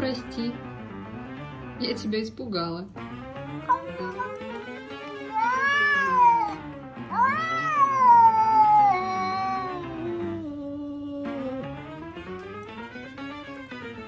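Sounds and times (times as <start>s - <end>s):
background music: 0.0s - 14.0s
cat yowling: 3.7s - 11.7s.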